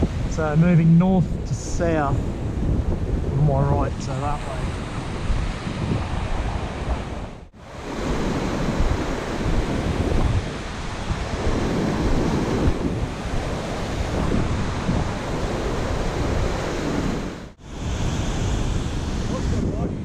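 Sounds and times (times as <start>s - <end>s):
ocean surf breaking on beach: 0.0s - 20.0s
wind buffeting microphone: 0.0s - 20.0s.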